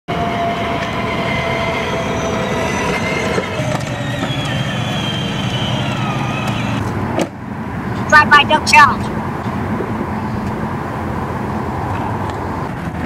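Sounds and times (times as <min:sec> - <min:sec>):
electric motor whine: 0:00.3 - 0:06.8
plastic wheels rumbling on pavement: 0:02.7 - 0:06.8.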